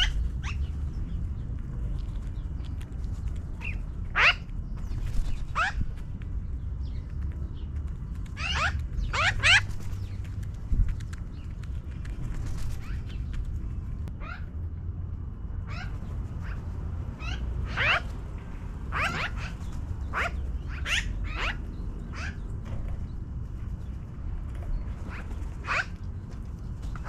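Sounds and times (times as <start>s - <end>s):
magpies calling: 0.0s - 1.2s, 3.5s - 6.0s, 8.2s - 10.3s, 11.3s - 13.4s, 14.1s - 14.6s, 15.6s - 18.2s, 18.9s - 22.7s, 24.7s - 27.0s
low steady rumble: 0.0s - 27.0s.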